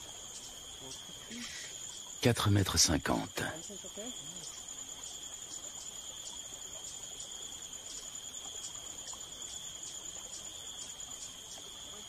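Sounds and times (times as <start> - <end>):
insects shrilling: 0.0 - 2.3.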